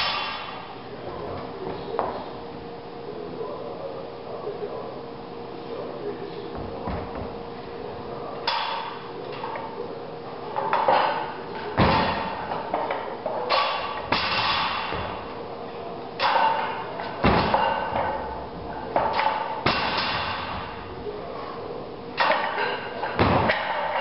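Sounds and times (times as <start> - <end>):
metallic clanks of barbell plates: 10.6 - 15.2, 16.2 - 18.2, 22.2 - 24.0
barbell thudding on rubber floor: 11.8 - 15.3, 16.2 - 18.3, 22.2 - 24.0.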